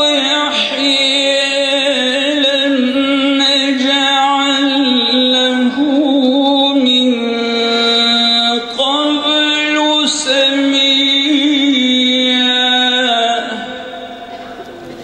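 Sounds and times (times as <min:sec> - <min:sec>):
man chanting into microphone: 0:00.0 - 0:14.2.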